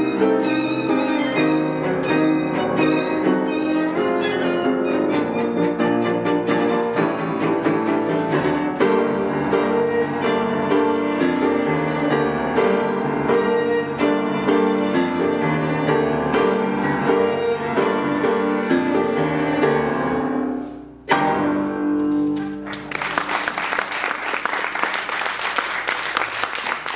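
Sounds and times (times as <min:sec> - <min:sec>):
violin cello and piano tango: 0:00.0 - 0:22.2
audience applause: 0:22.6 - 0:26.9.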